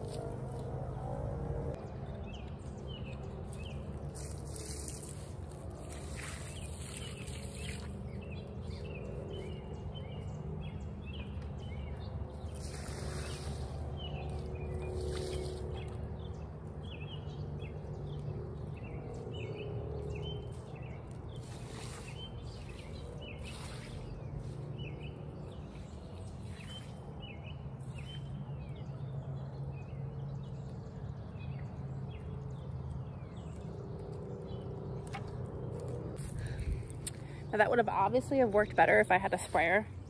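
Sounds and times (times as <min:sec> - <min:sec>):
low outdoor rumble: 0:00.0 - 0:40.0
small birds chirping: 0:01.8 - 0:40.0
water splashing onto soil: 0:03.6 - 0:08.2, 0:12.5 - 0:16.2, 0:20.4 - 0:24.7.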